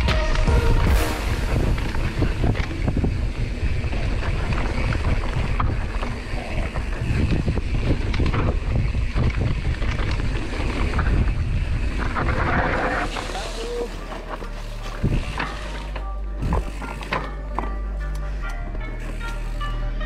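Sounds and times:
wind buffeting microphone: 0:00.0 - 0:13.1, 0:15.0 - 0:15.4
tyres rumbling on dirt: 0:00.0 - 0:17.6
bike rattling and clacking: 0:01.6 - 0:20.0.

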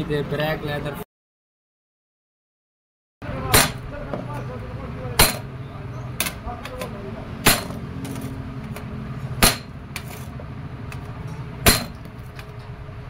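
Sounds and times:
hammer striking steel punch: 0:03.4 - 0:04.2, 0:05.2 - 0:05.5, 0:06.2 - 0:08.3, 0:09.4 - 0:10.1, 0:11.6 - 0:12.1.

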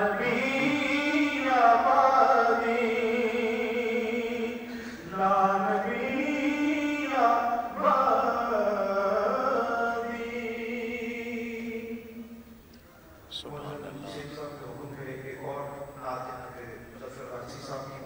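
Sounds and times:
solo voice chanting: 0:00.0 - 0:12.4
person breathing: 0:04.6 - 0:05.1.

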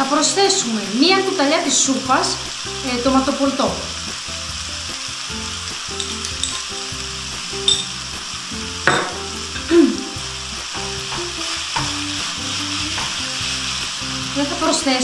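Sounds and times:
mince sizzling in a pan: 0:00.0 - 0:15.0
wooden spoon stirring mince: 0:05.9 - 0:06.7, 0:09.5 - 0:15.0.

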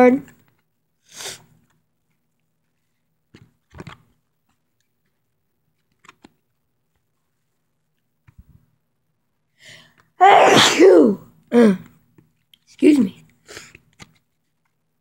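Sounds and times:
faint breath in: 0:09.6 - 0:10.0
person sneezing: 0:10.2 - 0:11.8.

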